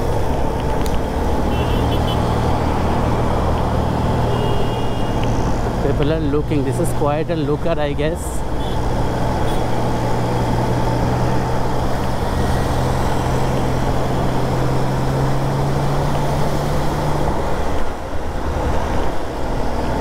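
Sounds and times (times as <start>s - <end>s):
traffic noise: 0.0s - 20.0s.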